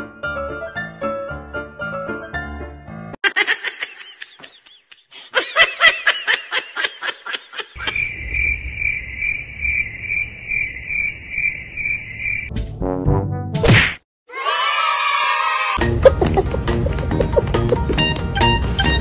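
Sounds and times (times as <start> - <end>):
high rapid giggling: 3.2 - 8.1, 15.9 - 18.2
cricket chirping: 7.8 - 12.5.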